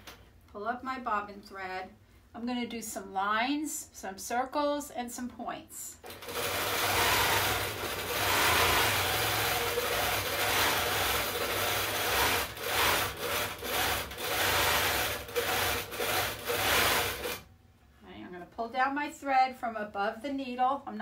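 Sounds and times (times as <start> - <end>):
sewing machine motor humming: 6.0 - 17.5.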